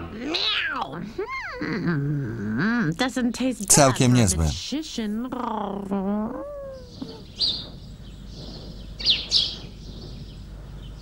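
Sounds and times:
birds chirping: 6.7 - 11.0.

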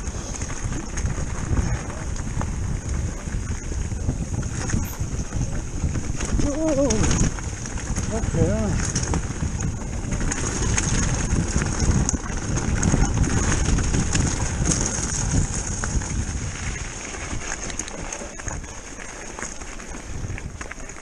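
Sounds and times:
bike rattling: 0.0 - 21.0
wind rumble: 0.0 - 21.0
stones crunching under tyres: 4.2 - 21.0.

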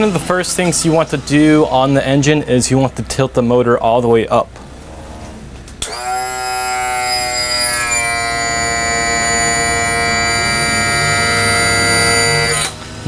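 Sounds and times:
electric motor whining: 5.8 - 12.8.

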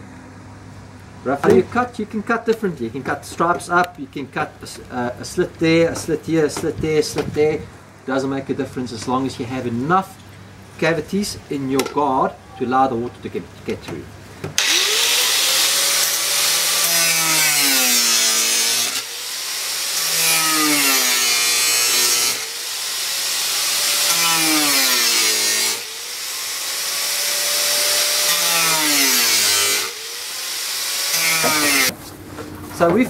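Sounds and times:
angle grinder cutting plastic pipe: 14.6 - 32.0.

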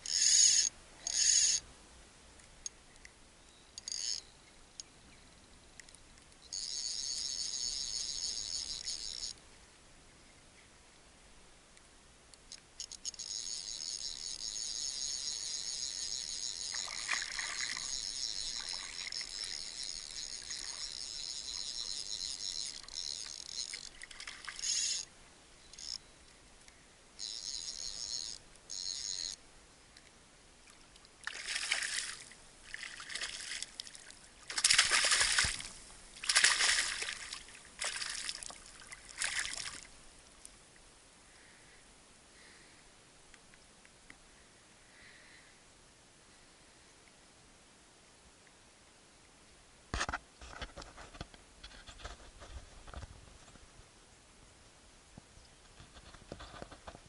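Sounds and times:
fly reel clicker ratcheting: 0.0 - 1.6, 3.8 - 4.2, 6.5 - 9.4, 12.4 - 25.1, 25.7 - 26.0, 27.2 - 29.4
fish splashing in shallow water: 16.0 - 24.6, 31.2 - 39.9.

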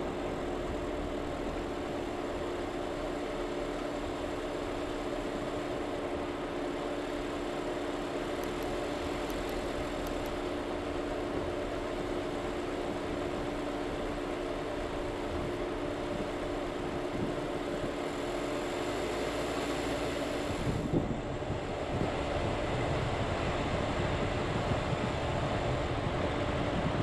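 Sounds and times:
car engine and tyre noise: 0.0 - 27.0
faint high ticks: 8.4 - 10.4.

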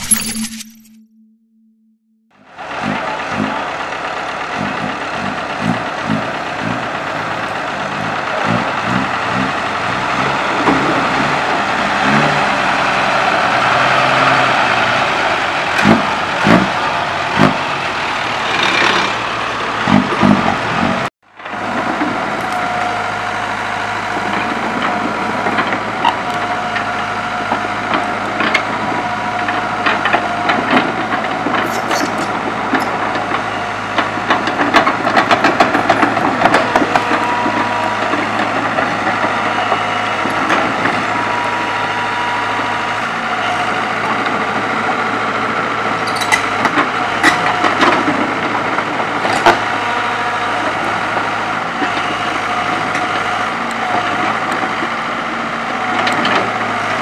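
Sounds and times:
diesel truck running: 2.3 - 57.0
excavator diesel engine running: 2.3 - 57.0
knocks and clatter: 34.0 - 39.4.

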